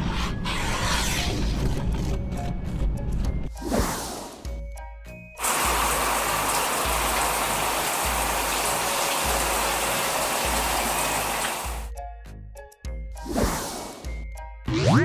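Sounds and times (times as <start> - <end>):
shower water spraying: 5.4 - 11.9.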